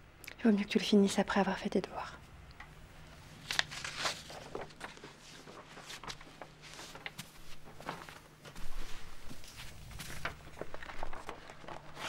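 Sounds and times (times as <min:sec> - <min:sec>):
rustling: 0:03.4 - 0:12.0.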